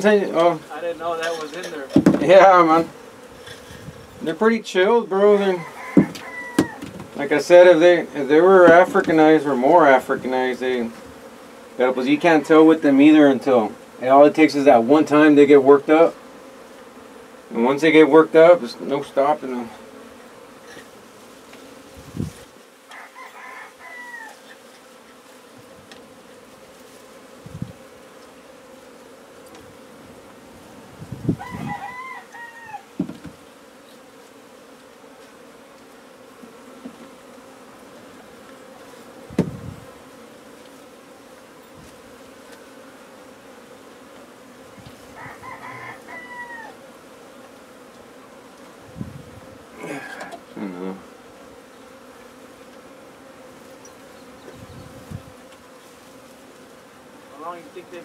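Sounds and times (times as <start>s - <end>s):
honey bees buzzing: 0.0s - 58.0s
knocks of wooden frames handled: 1.9s - 2.3s, 5.9s - 7.2s, 32.9s - 33.4s
rooster crowing: 5.4s - 6.9s, 22.9s - 24.5s, 31.3s - 33.0s, 45.0s - 46.9s.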